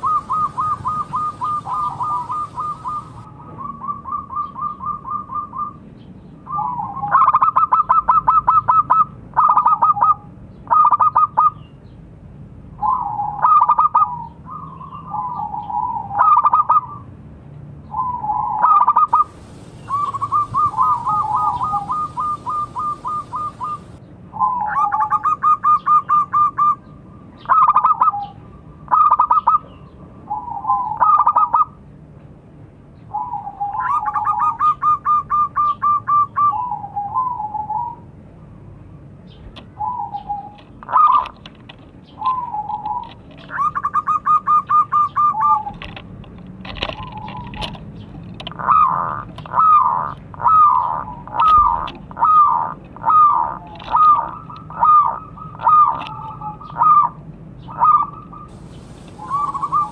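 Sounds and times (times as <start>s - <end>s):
dove cooing: 0.0s - 5.8s, 12.8s - 17.0s, 18.0s - 26.8s, 27.5s - 29.6s, 30.3s - 31.7s, 39.8s - 41.4s, 42.2s - 46.0s, 46.8s - 47.7s, 48.5s - 59.9s.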